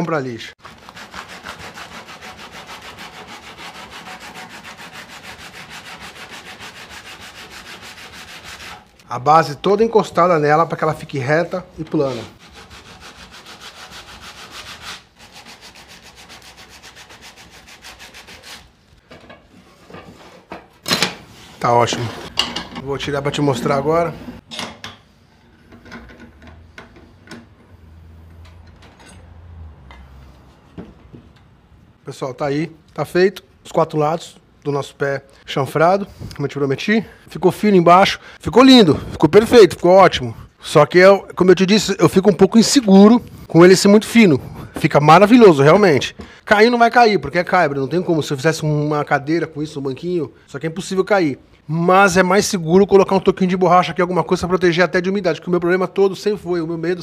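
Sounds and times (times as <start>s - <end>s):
sandpaper rubbing on wood: 0.6s - 9.0s, 11.9s - 18.8s.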